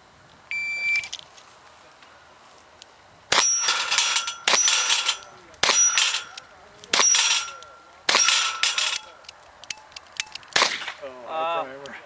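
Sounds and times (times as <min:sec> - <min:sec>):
steel plate clanging: 0:03.3 - 0:09.2.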